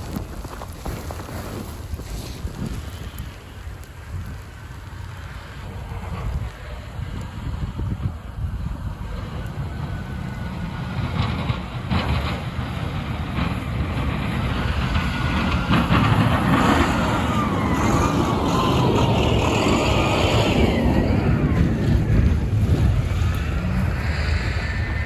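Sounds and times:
plow blade pushing snow: 0:00.0 - 0:25.0
truck engine passing: 0:05.0 - 0:25.0.

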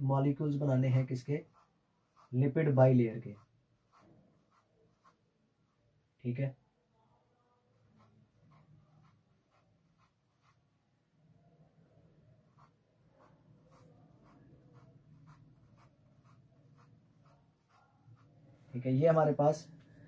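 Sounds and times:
marker pen scratching on whiteboard: 0:01.0 - 0:05.3, 0:07.8 - 0:10.8, 0:12.4 - 0:18.4.

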